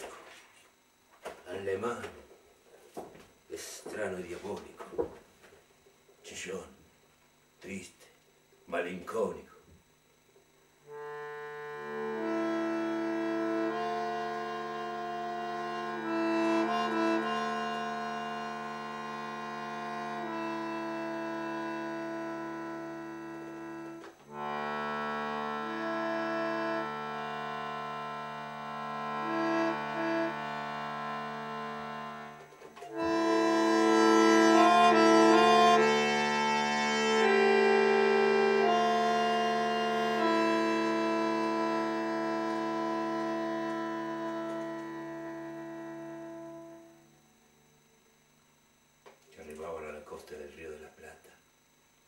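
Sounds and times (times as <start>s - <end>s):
bandoneon playing held chords: 8.8s - 50.2s.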